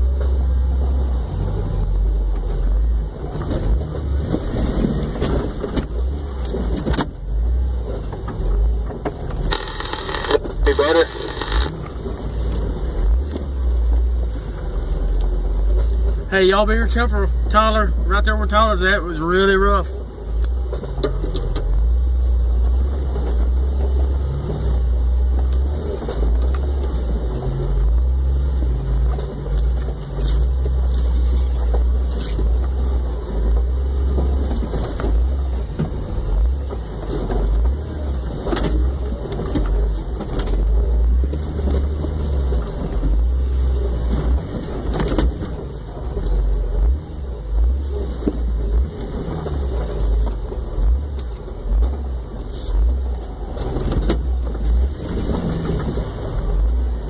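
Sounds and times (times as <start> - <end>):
vehicle engine running low: 0.0 - 57.0
knocks and rattles over rocks: 3.1 - 14.4, 28.6 - 57.0.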